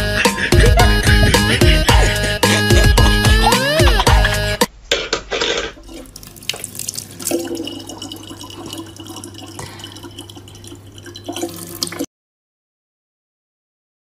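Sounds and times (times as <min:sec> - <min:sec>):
tap water running into bottle: 0:05.8 - 0:12.1.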